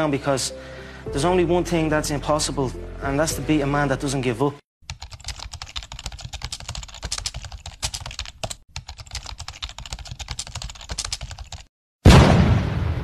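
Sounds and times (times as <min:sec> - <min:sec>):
keyboard typing clicks: 0:04.9 - 0:11.7.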